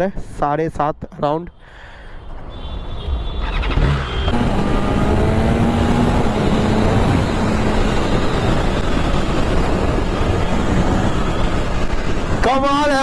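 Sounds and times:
motorcycle engine revving: 3.4s - 11.3s.

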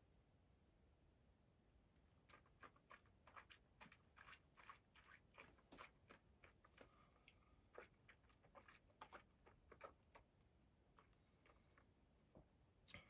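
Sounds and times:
wet mouth clicks and lip smacks: 2.3s - 6.9s, 7.7s - 10.3s.

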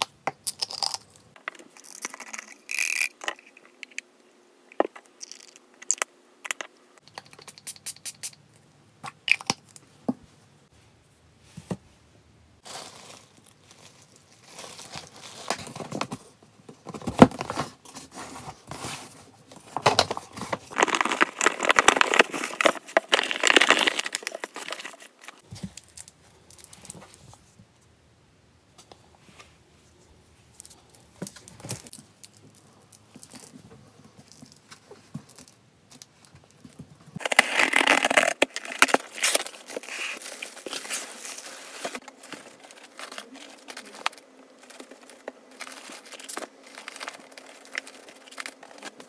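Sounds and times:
bag of litter crinkling: 12.6s - 16.1s, 17.5s - 27.2s, 37.2s - 49.0s.

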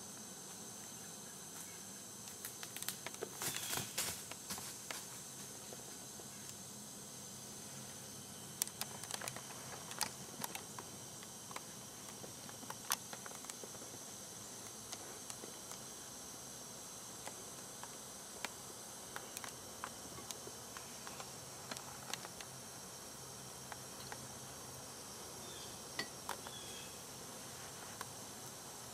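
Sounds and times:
insects droning: 0.0s - 28.9s
sharp clicks and crackles: 8.6s - 13.9s.

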